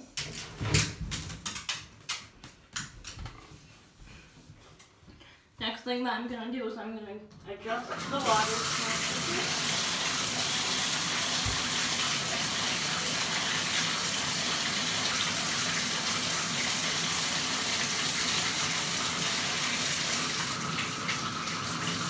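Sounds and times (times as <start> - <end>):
water pouring into bathtub: 7.7 - 22.0.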